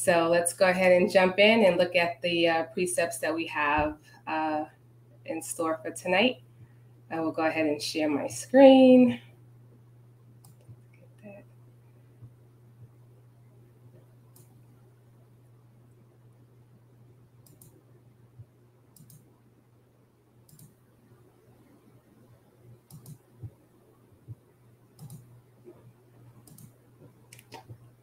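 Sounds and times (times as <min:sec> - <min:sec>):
low steady hum: 0:00.0 - 0:28.0
computer mouse clicks: 0:10.4 - 0:11.1, 0:14.3 - 0:14.6, 0:17.4 - 0:17.8, 0:18.9 - 0:19.3, 0:20.5 - 0:20.8, 0:22.8 - 0:23.6, 0:25.0 - 0:25.8, 0:26.4 - 0:27.8.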